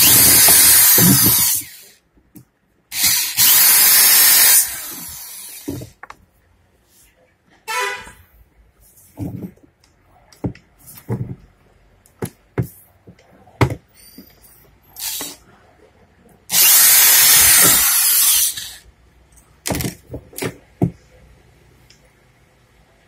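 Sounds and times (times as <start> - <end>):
cordless drill running: 0.0 - 1.9, 2.9 - 5.7, 16.5 - 18.8.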